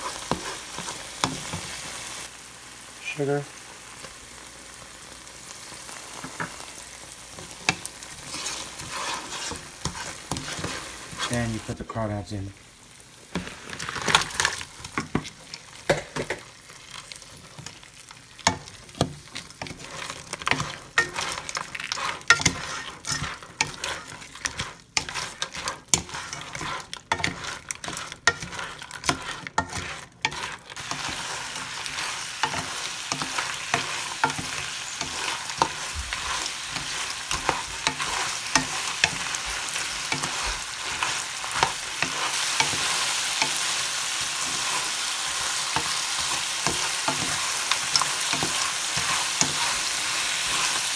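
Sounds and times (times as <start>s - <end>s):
oil sizzling in a pan: 0.0s - 50.9s
shells and spatula clattering in pan: 13.3s - 50.9s.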